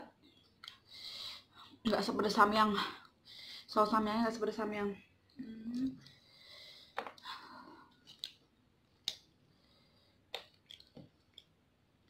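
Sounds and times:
eating sounds clicks and smacks: 0:10.3 - 0:11.6.

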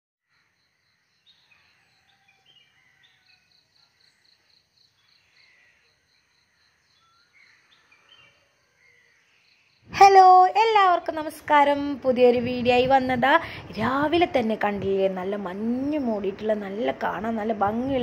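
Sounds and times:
pulsing high insect call: 0:00.4 - 0:10.6.

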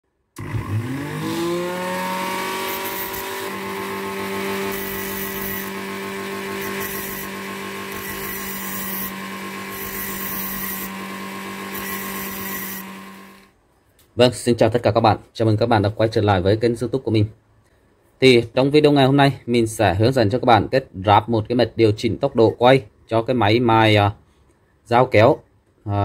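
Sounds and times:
electric motor high whine: 0:00.4 - 0:13.5
steel rod grinding on disc: 0:01.0 - 0:13.4.

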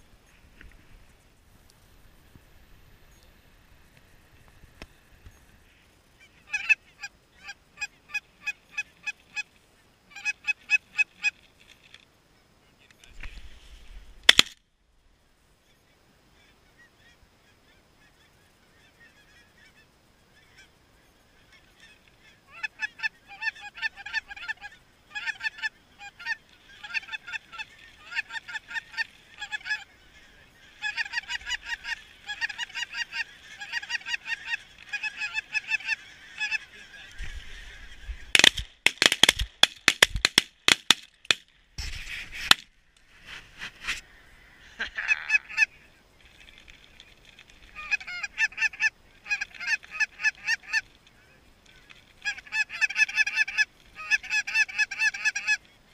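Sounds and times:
geese honking: 0:05.7 - 0:11.4, 0:21.4 - 0:38.6, 0:43.8 - 0:51.0, 0:51.6 - 0:55.6.

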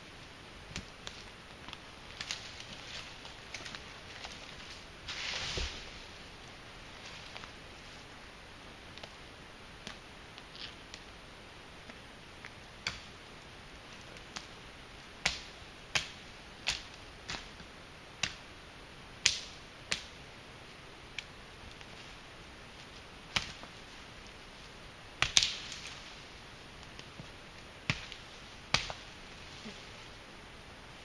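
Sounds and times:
short rustle: 0:02.2 - 0:06.3
blade chopping branches: 0:25.2 - 0:26.0, 0:27.8 - 0:29.1.

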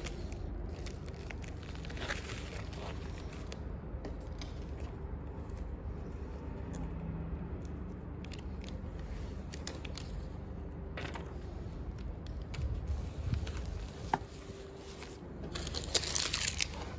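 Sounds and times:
plastic mailer crinkling: 0:00.0 - 0:03.6, 0:12.4 - 0:16.9
label peeling crackle: 0:00.0 - 0:16.9
steady low hum: 0:00.0 - 0:16.9.

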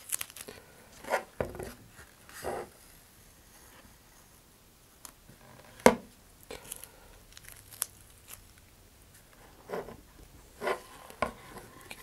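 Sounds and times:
tape ripping: 0:00.0 - 0:00.5, 0:06.6 - 0:08.6.

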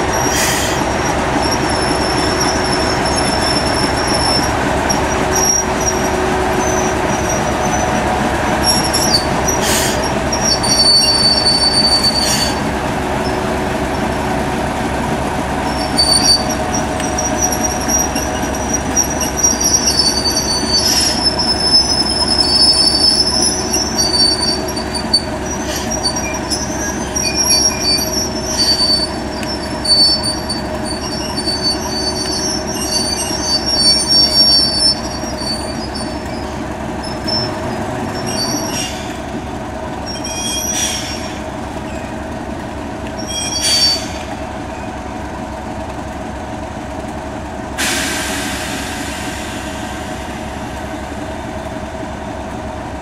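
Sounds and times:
high-pitched metallic squealing: 0:00.0 - 0:13.3, 0:15.6 - 0:39.4, 0:40.0 - 0:42.2, 0:43.2 - 0:45.0
diesel locomotive engine running: 0:00.0 - 0:53.0.

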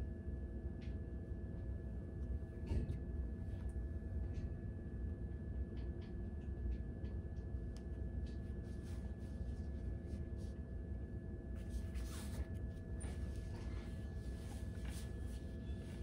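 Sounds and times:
faint constant hum: 0:00.0 - 0:16.0
low room rumble: 0:00.0 - 0:16.0
rustles and ticks of braiding: 0:05.4 - 0:16.0.

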